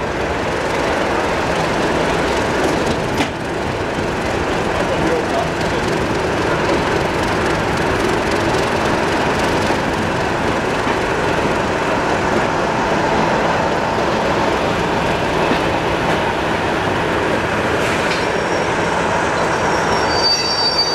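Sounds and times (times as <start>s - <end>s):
train wheels rolling on rail: 0.0s - 20.9s
high wheel squeal: 18.2s - 20.9s.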